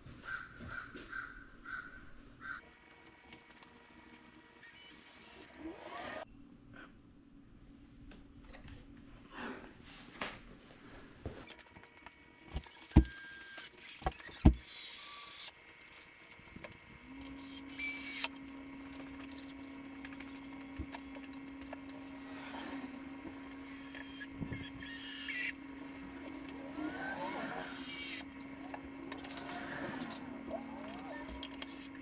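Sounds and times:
steady low hum: 15.6s - 32.0s
cordless drill driving screws: 17.4s - 18.3s, 22.2s - 25.5s, 26.3s - 28.5s, 29.1s - 32.0s.

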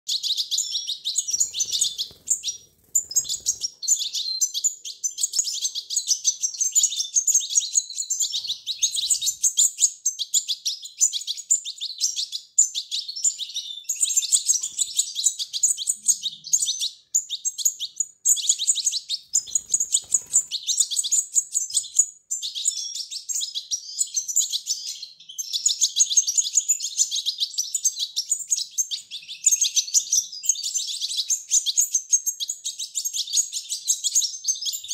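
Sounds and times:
fledglings begging chirps: 0.1s - 34.9s.

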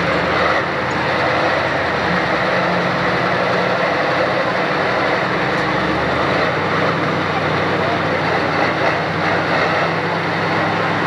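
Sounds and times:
diesel tractor engine idling: 0.0s - 11.0s.

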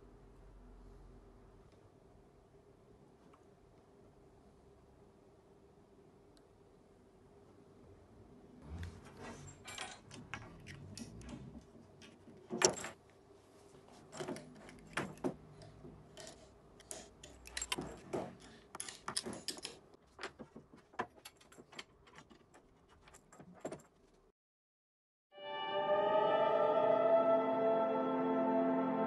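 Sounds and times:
small metal parts clinking: 9.4s - 11.3s, 15.7s - 19.9s.

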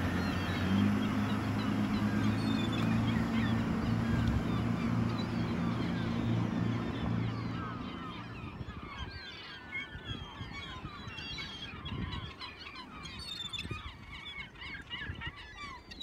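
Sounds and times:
boat motor drone: 0.0s - 12.1s
gulls calling: 0.0s - 16.0s.

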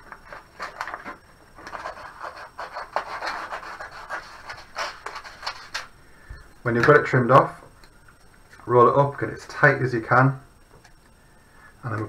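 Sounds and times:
paper rustling: 0.0s - 5.9s
scissors cutting paper: 1.6s - 5.9s.

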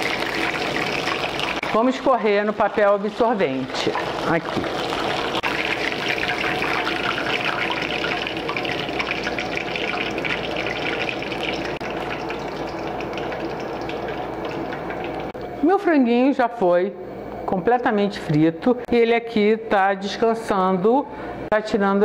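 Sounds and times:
deep-frying oil sizzling: 0.0s - 15.4s.

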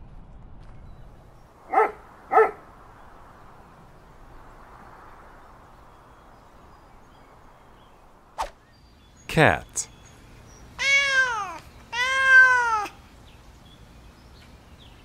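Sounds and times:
faint outdoor background noise: 0.0s - 15.0s
dog barking: 1.7s - 2.7s.

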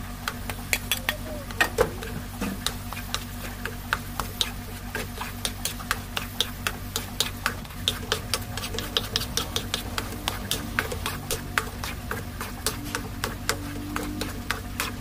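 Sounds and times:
low hum: 7.6s - 15.0s.

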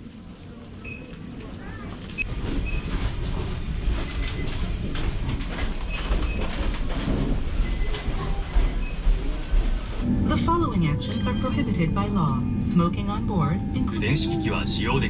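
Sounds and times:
clattering footsteps: 1.9s - 10.0s
low rumble: 2.2s - 15.0s.

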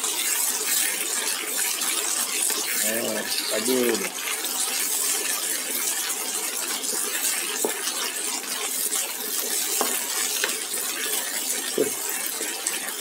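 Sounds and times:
fish sizzling in hot oil: 0.0s - 13.0s
wooden spatula knocking pan: 9.8s - 10.6s, 11.8s - 12.0s.

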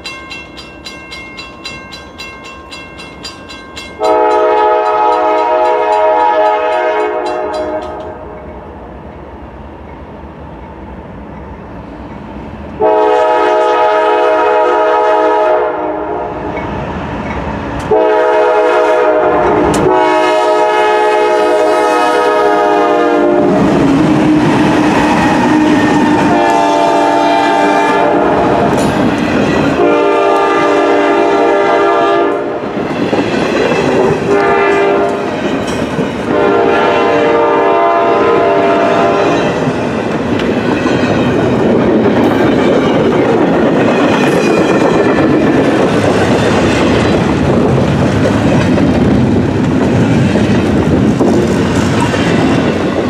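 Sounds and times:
train rumble and wheel clatter: 0.0s - 53.0s
locomotive horn blasts: 4.0s - 8.2s, 12.8s - 16.4s, 17.9s - 23.7s, 25.4s - 28.7s, 29.8s - 32.6s, 34.3s - 35.3s, 36.2s - 39.4s.

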